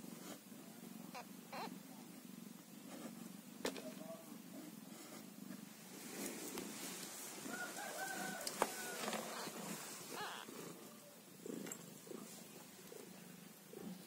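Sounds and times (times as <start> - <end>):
kittens mewing: 1.1 - 1.8, 9.0 - 10.8
cat purring: 9.1 - 14.0.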